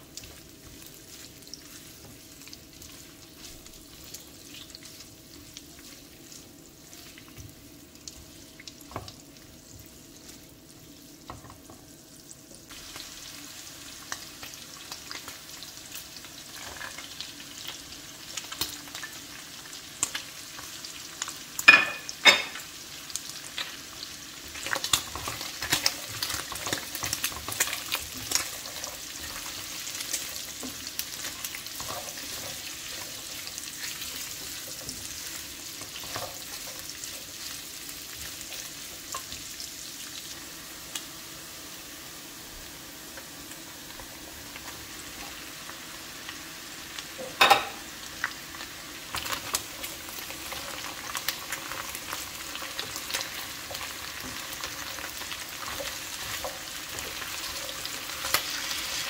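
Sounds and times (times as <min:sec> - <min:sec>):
spatula stirring: 0:00.0 - 0:10.4, 0:24.4 - 0:39.4, 0:49.1 - 0:59.0
meat sizzling in a pan: 0:00.0 - 0:59.0.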